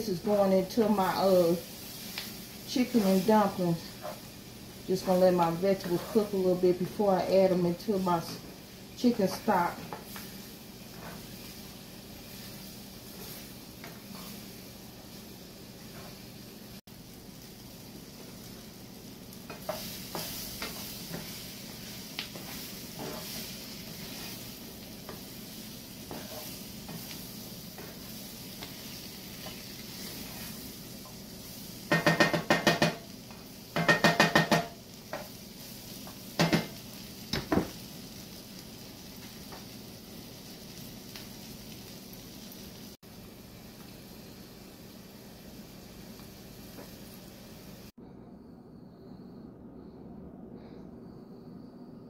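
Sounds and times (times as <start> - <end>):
vegetables sizzling in a skillet: 0.0 - 47.9
spatula scraping a skillet: 0.7 - 4.4, 5.0 - 6.6, 8.1 - 16.3, 19.5 - 36.7
spatula taps on pan: 31.9 - 33.0, 33.8 - 35.3.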